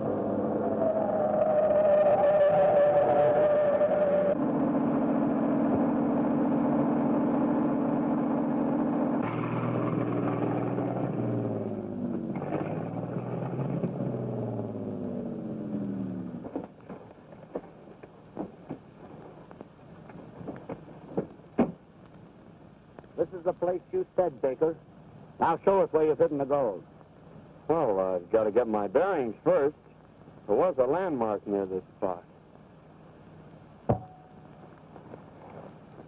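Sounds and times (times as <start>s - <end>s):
car engine running: 4.4s - 16.7s.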